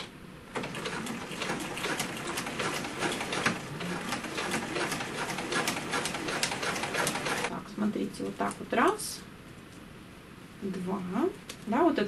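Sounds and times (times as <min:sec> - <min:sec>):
sewing machine clattering: 0:00.5 - 0:07.5.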